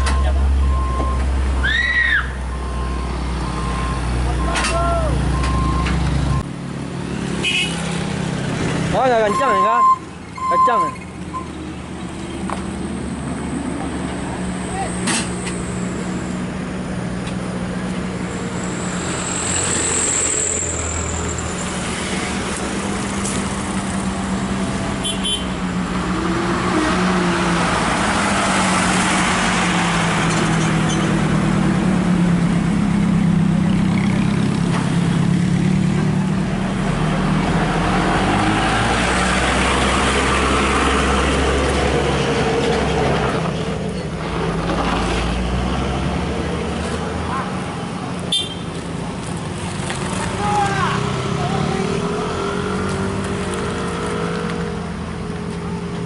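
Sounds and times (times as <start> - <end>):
high-pitched squeal: 18.2 - 22.3.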